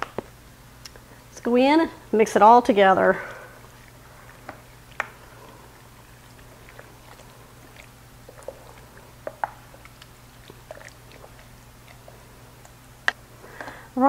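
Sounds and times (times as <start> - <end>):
spoon stirring thick mixture: 3.1 - 13.9.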